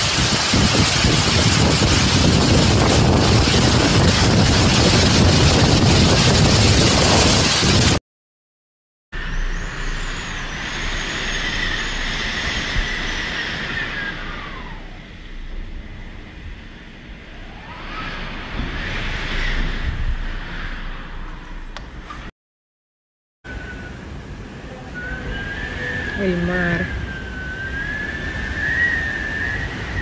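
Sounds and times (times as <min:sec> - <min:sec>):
wind and driving rain: 0:00.0 - 0:08.0, 0:09.2 - 0:22.3, 0:23.5 - 0:30.0
faint whistling tone: 0:09.2 - 0:15.2, 0:23.5 - 0:30.0.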